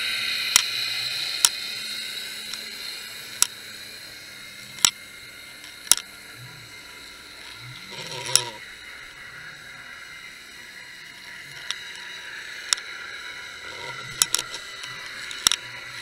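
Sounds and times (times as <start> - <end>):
steady hiss: 0.0 - 16.0
rough sound: 7.4 - 8.7, 12.7 - 16.0.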